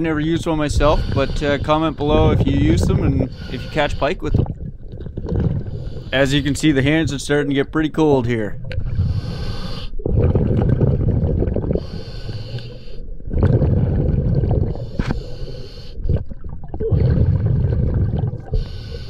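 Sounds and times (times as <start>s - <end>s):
exhaled bubbles burbling: 0.0s - 6.1s, 10.0s - 12.4s, 13.1s - 18.9s
regulator inhalation hiss: 11.8s - 13.0s, 18.5s - 19.0s.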